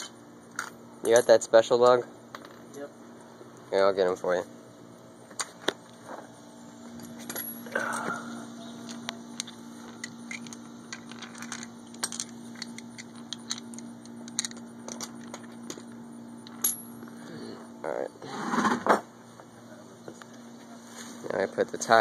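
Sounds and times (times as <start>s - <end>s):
low hum: 2.1s - 18.4s
metal nuts clinking: 9.4s - 15.8s.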